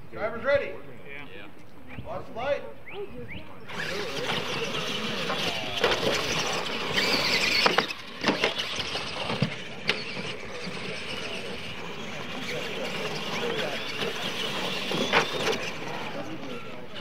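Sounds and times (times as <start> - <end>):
rc truck motors whining: 3.6 - 17.0.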